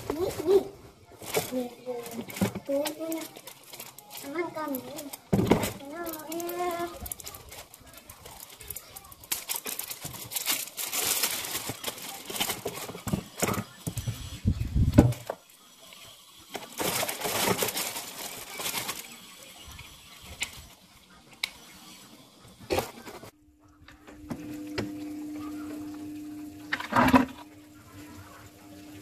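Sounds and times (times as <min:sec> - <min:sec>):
plastic bag crinkling: 0:00.0 - 0:14.4, 0:15.0 - 0:21.7.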